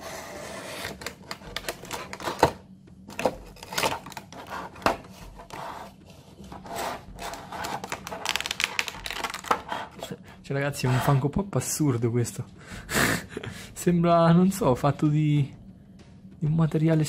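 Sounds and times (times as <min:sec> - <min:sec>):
plastic scraping out of cardboard: 0:00.0 - 0:10.1
thin plastic crackling: 0:07.3 - 0:09.8.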